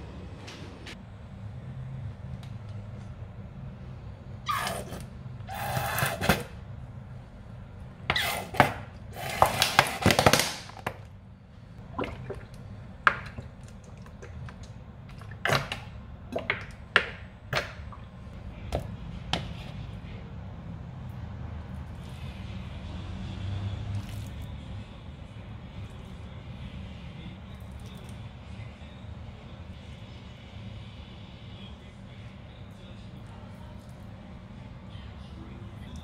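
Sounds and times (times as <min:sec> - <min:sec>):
oil glugging from a bottle: 0:11.8 - 0:18.2.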